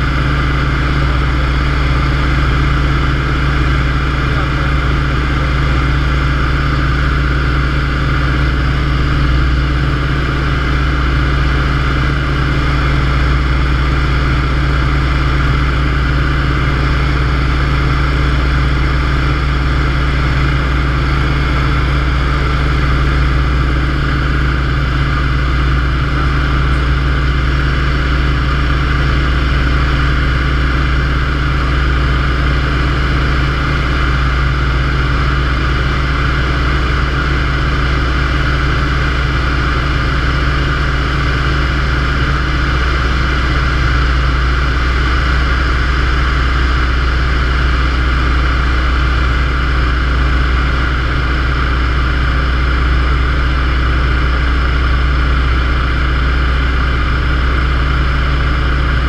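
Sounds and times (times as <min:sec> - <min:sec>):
radial aircraft engine and propeller: 0:00.0 - 0:59.0.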